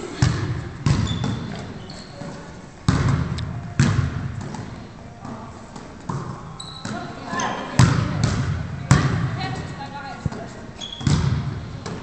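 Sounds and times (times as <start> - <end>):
ball thuds in echoing hall: 0.0 - 12.0
high shoe squeaks: 1.0 - 2.6, 6.5 - 7.8, 10.7 - 11.2.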